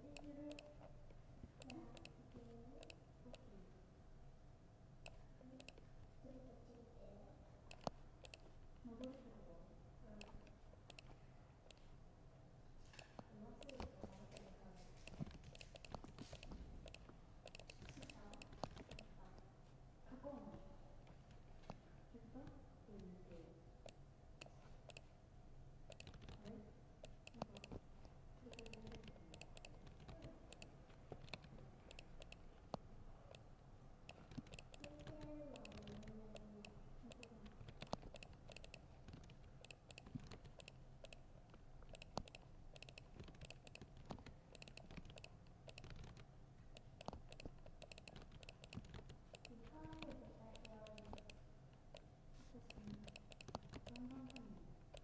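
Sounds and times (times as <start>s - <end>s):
laptop keyboard typing: 0.0s - 0.9s, 1.6s - 3.0s, 7.7s - 9.3s, 10.2s - 11.9s, 13.0s - 19.2s, 23.8s - 25.1s, 25.9s - 33.5s, 34.1s - 52.1s, 52.7s - 55.0s.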